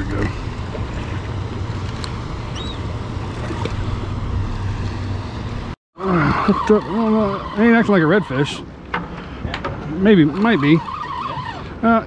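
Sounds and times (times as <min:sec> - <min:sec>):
small waves slapping a boat: 0:00.0 - 0:05.8
outboard motor idling: 0:00.0 - 0:08.5
wind: 0:00.0 - 0:12.0.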